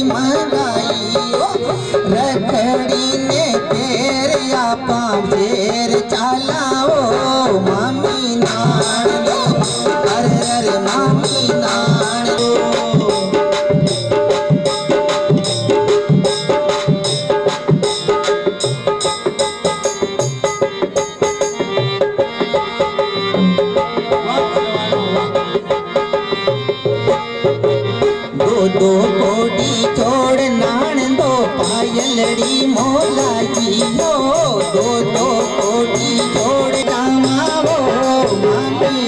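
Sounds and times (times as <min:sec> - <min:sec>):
frame drum dance rhythm: 0:00.0 - 0:39.0
held melodic tone: 0:00.0 - 0:39.0.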